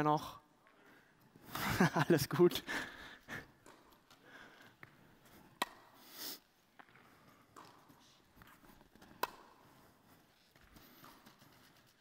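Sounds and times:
ball bouncing: 3.6s - 6.0s, 6.7s - 9.8s
racket hitting tennis ball: 4.8s - 6.1s, 6.8s - 9.8s.

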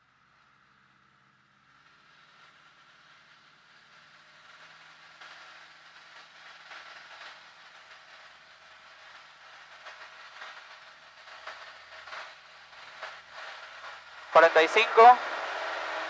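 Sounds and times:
light aircraft engine at takeoff: 0.0s - 16.0s
rushing noise: 14.3s - 16.0s.

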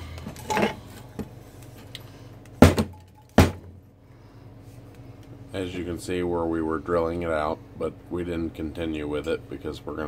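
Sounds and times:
metal pipe knocks on workbench: 2.6s - 3.7s.

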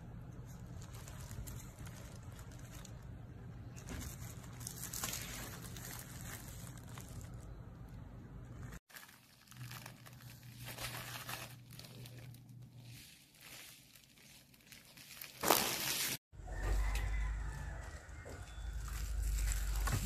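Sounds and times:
plastic wrapping crinkling: 0.3s - 16.2s, 18.7s - 20.0s.

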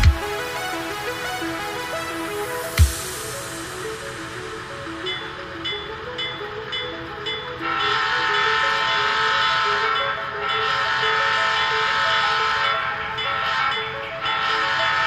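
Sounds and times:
model train air horn blasts: 7.6s - 15.0s.

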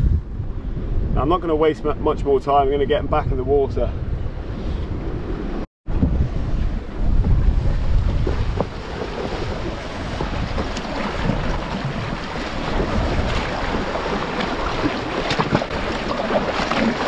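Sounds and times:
wind buffeting microphone: 0.0s - 17.0s
sea washing over rocks: 7.1s - 17.0s.

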